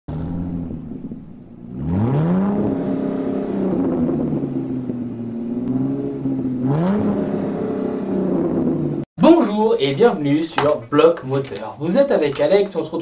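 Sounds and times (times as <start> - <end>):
car engine idling and revving: 0.1 - 9.1.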